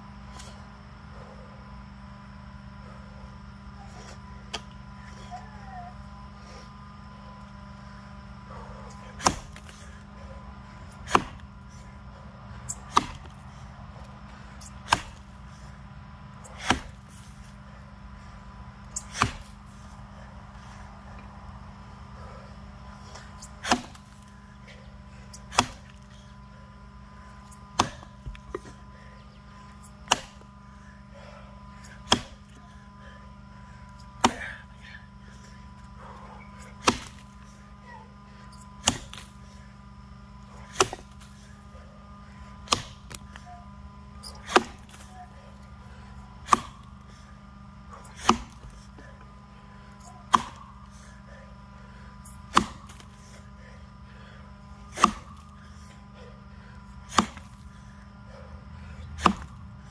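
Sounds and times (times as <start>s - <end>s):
axe chopping log: 9.2s - 9.9s, 11.0s - 11.5s, 12.9s - 13.3s, 14.6s - 15.3s, 16.6s - 17.1s, 19.0s - 19.6s, 23.6s - 24.3s, 25.4s - 26.1s, 27.7s - 28.7s, 30.0s - 30.4s, 31.8s - 32.5s, 34.2s - 34.6s, 36.8s - 37.4s, 38.8s - 39.4s, 40.7s - 41.4s, 42.6s - 43.5s, 44.2s - 45.2s, 46.4s - 46.9s, 48.1s - 48.7s, 50.3s - 50.7s, 52.4s - 53.2s, 54.9s - 55.5s, 57.1s - 57.7s, 59.1s - 59.6s.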